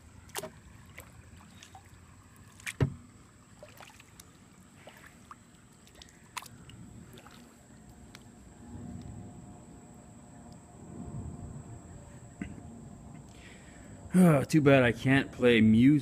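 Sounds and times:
paddle drips: 0:00.0 - 0:09.2
water sloshing: 0:00.0 - 0:09.3.

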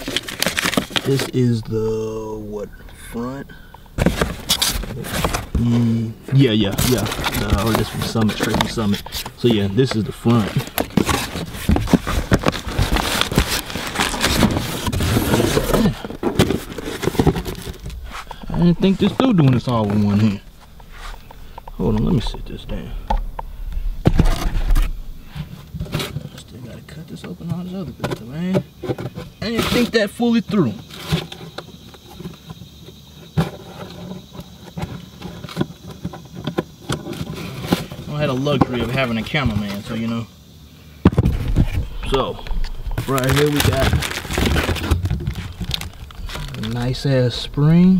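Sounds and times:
cardboard scraping and crackling: 0:00.0 - 0:03.4, 0:04.0 - 0:26.6, 0:27.5 - 0:32.6, 0:33.2 - 0:40.1, 0:41.1 - 0:47.9
low hum: 0:01.3 - 0:25.8, 0:41.6 - 0:43.3.

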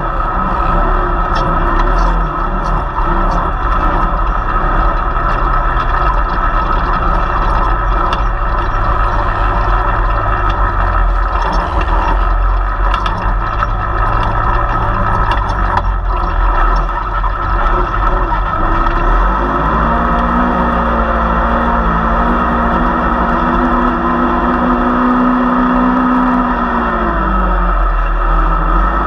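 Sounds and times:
vehicle engine under load: 0:00.0 - 0:29.0
clicks and rattles: 0:01.2 - 0:19.0.

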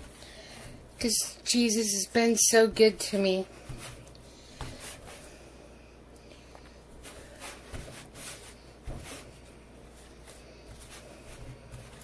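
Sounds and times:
dough squishing and patting: 0:02.2 - 0:05.4, 0:06.2 - 0:12.0.

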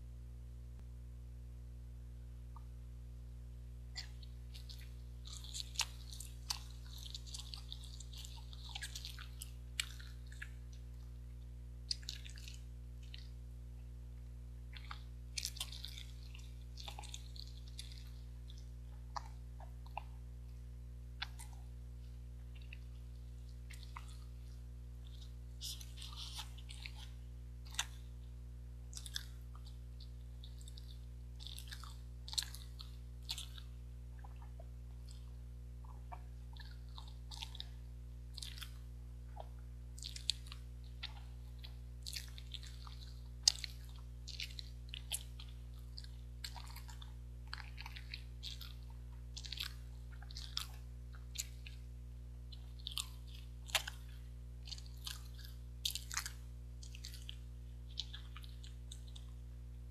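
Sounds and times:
steady low hum: 0:00.0 - 0:59.9
wet chewing and mouth sounds: 0:03.9 - 0:13.5, 0:14.6 - 0:59.9.

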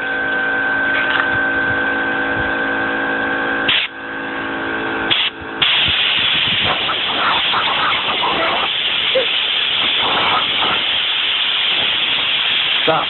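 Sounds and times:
air compressor motor whine: 0:00.0 - 0:13.0
air hose blasts hissing: 0:03.7 - 0:03.9, 0:05.1 - 0:13.0.

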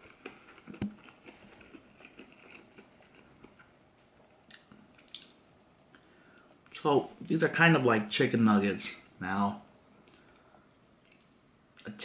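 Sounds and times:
faint chewing: 0:00.0 - 0:06.8, 0:10.0 - 0:11.9
wet mouth clicks: 0:04.5 - 0:06.0.

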